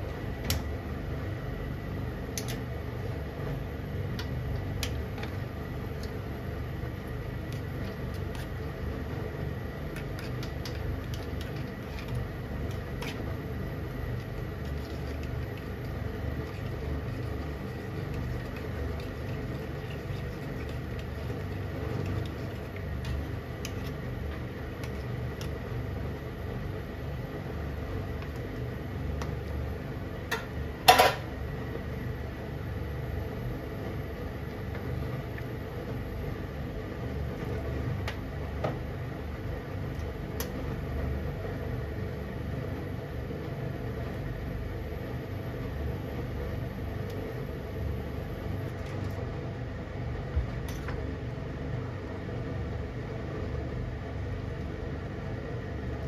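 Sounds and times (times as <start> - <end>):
broth bubbling in a pan: 2.8 - 30.4.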